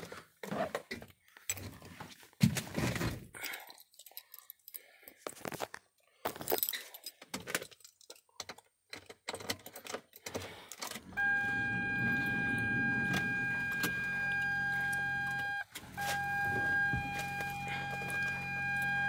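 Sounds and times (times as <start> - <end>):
low hum: 11.0 - 19.0
dashboard warning buzzer: 11.1 - 19.0.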